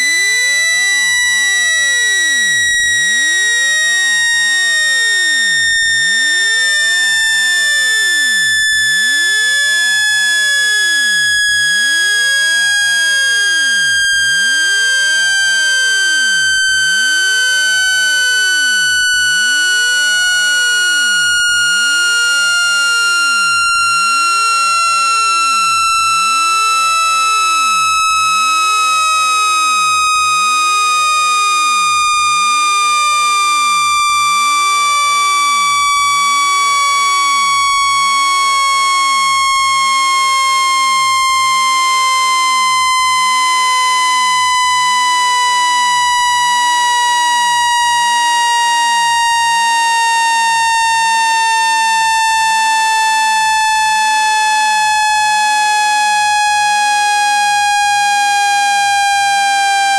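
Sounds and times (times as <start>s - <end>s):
buzzy electronic tone falling: 7.8s - 30.5s.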